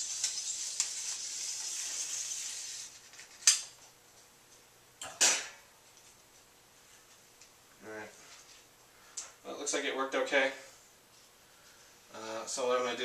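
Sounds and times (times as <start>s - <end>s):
film strip sliding hiss: 0.0s - 3.6s
film strip snapping: 0.0s - 3.8s.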